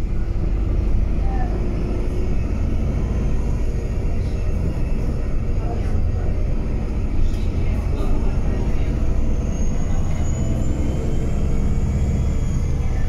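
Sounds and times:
bus diesel engine rumble: 0:00.0 - 0:13.0
road noise: 0:00.0 - 0:13.0.

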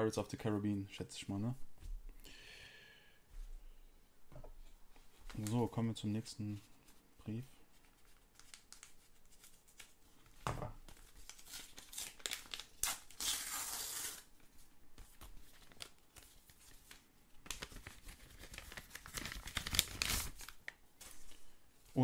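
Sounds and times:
paper rustling: 0:07.7 - 0:22.0
paper tearing: 0:11.3 - 0:14.3.

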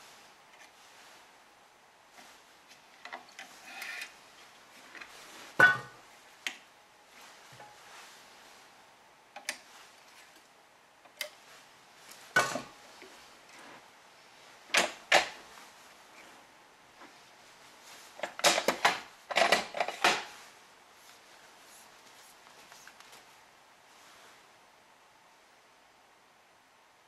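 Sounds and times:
string rustling: 0:02.1 - 0:06.5, 0:07.1 - 0:08.9, 0:11.3 - 0:18.3, 0:20.2 - 0:24.5
sharp clicks and knocks of clamps: 0:14.7 - 0:15.4, 0:18.2 - 0:20.3.

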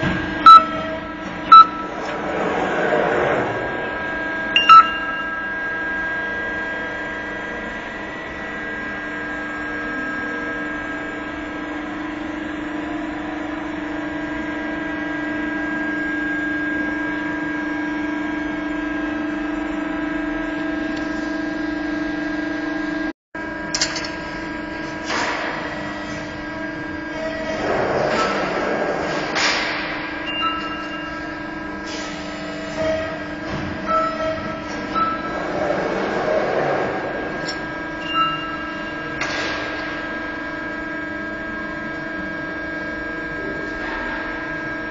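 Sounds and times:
hydraulic power unit humming: 0:00.0 - 0:44.9
loud short beep: 0:00.4 - 0:01.9, 0:04.6 - 0:05.6, 0:30.2 - 0:31.2, 0:38.0 - 0:39.0.

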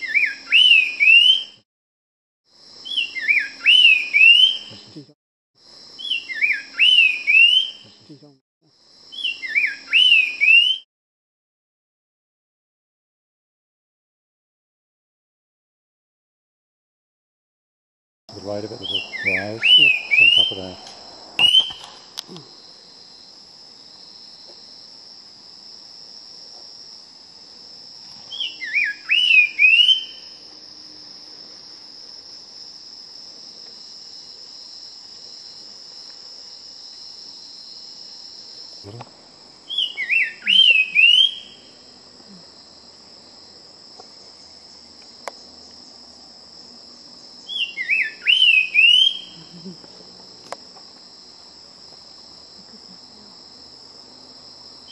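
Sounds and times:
bird singing whistled notes: 0:00.0 - 0:01.6, 0:02.8 - 0:04.8, 0:06.0 - 0:07.9, 0:09.1 - 0:10.9, 0:18.8 - 0:20.8, 0:21.4 - 0:22.0, 0:28.3 - 0:30.4, 0:39.7 - 0:41.7, 0:47.4 - 0:49.4
high buzz of insects: 0:00.0 - 0:01.6, 0:02.5 - 0:10.8, 0:18.3 - 0:54.9.

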